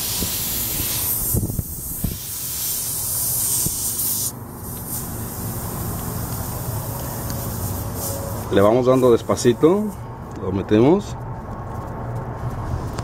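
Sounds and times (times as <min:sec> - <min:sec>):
air hissing from tyre puncture: 0:00.0 - 0:10.0.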